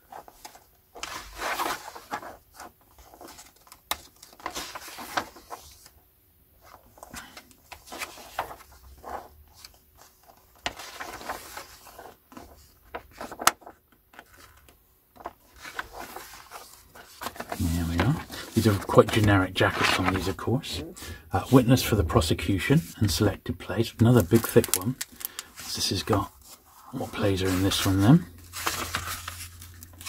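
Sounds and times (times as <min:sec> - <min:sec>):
paper dust jacket rustling: 0:00.1 - 0:05.9, 0:15.2 - 0:20.5, 0:24.1 - 0:30.0
book pages turning: 0:00.1 - 0:06.0, 0:06.6 - 0:30.0.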